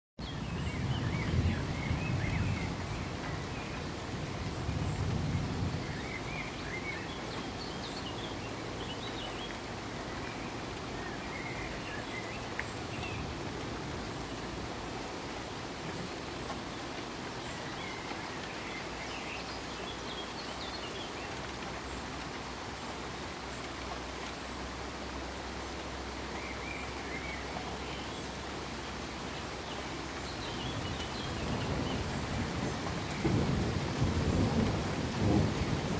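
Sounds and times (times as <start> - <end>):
rain patter: 0.2 - 35.9
low thunder rumbles: 0.4 - 6.6, 30.7 - 35.9.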